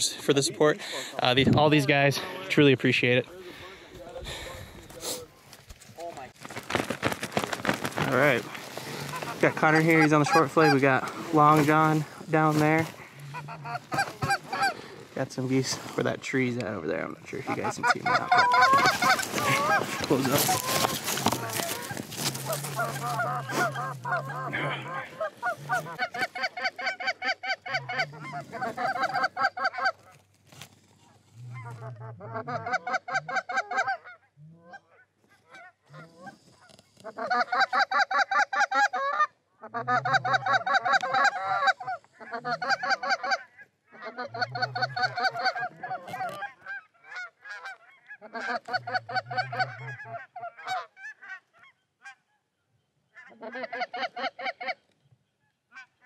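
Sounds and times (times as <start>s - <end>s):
goose honking and clucking: 7.6s - 30.2s, 31.0s - 52.4s, 53.1s - 54.9s, 55.7s - 56.0s.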